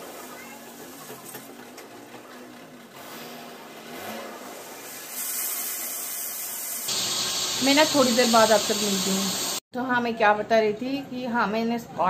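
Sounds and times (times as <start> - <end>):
mechanical hiss of building work: 4.5 - 9.6.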